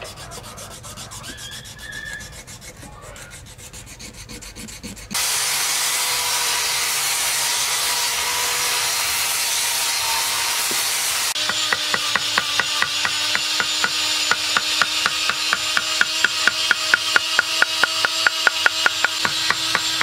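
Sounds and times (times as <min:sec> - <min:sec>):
sandpaper rubbing on wood: 0:00.0 - 0:20.0
mallet knocking on chisel: 0:11.4 - 0:20.0.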